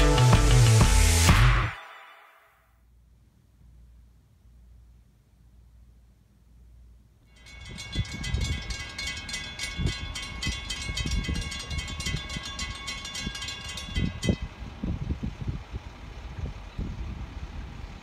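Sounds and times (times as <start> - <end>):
railroad crossing bell ringing: 7.3 - 14.7.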